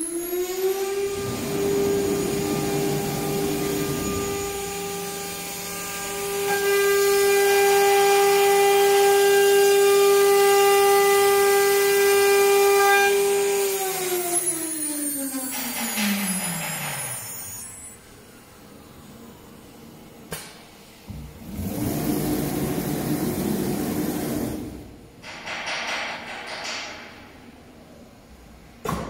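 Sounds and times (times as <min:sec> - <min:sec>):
router spindle whining: 0:00.0 - 0:18.0.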